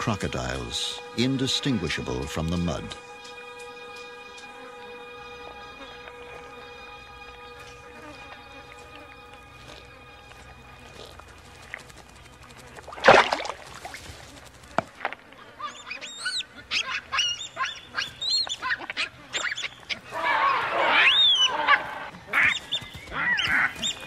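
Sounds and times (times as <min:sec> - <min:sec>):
baboons screaming: 0:15.4 - 0:24.0.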